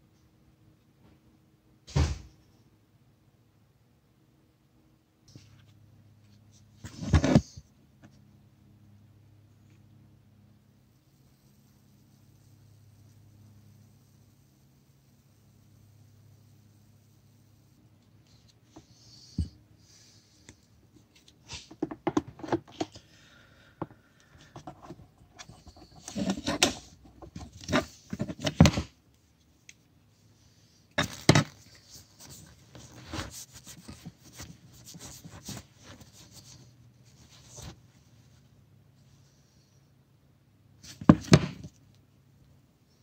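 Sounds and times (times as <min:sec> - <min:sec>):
tools handled on workbench: 0:21.1 - 0:23.0, 0:23.8 - 0:28.9.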